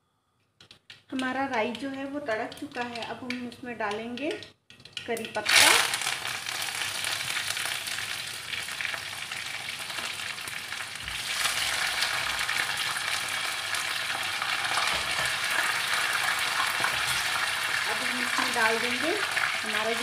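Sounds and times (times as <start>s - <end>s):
leaves sizzling in hot oil: 5.3s - 20.0s.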